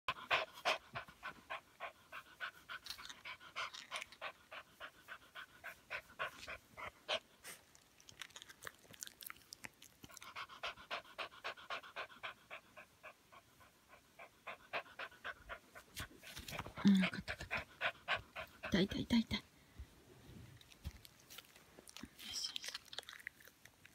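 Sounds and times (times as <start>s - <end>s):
dog panting fast: 0.1s - 7.6s, 10.1s - 19.4s.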